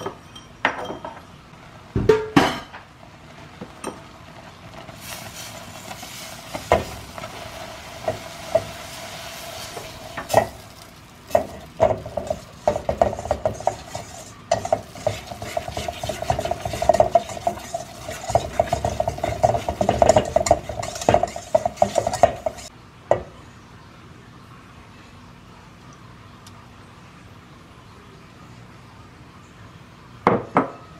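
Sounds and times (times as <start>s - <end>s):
whisk stirring in metal bowl: 9.6s - 22.7s
whisk knocking on bowl: 11.3s - 22.7s.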